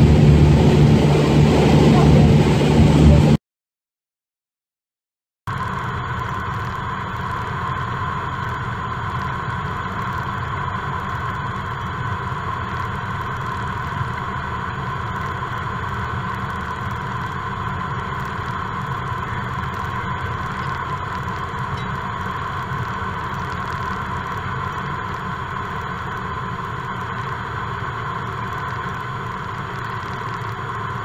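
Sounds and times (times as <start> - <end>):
airflow noise: 0.0 - 3.4
light aircraft engine drone: 0.0 - 3.4, 5.5 - 31.0.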